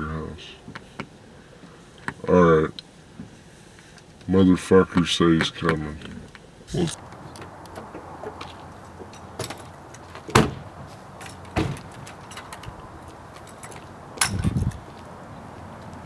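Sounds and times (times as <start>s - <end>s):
car door opening and shutting: 7.4s - 12.8s
sharp knocks: 10.3s - 10.7s.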